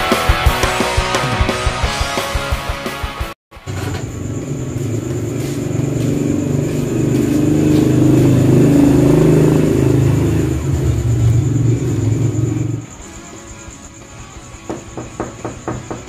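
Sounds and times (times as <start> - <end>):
motor scooter engine running: 3.6 - 13.2.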